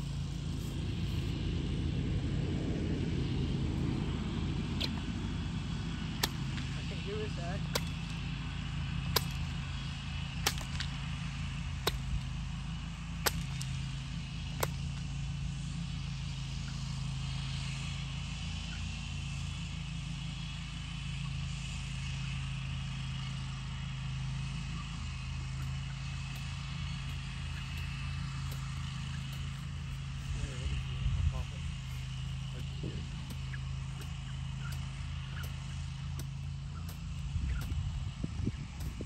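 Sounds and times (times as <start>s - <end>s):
steady low hum: 0.0s - 39.0s
whip cracks: 4.8s - 5.2s, 6.2s - 6.8s, 7.6s - 8.2s, 9.1s - 9.5s, 10.4s - 11.0s, 11.8s - 12.3s, 13.2s - 13.8s.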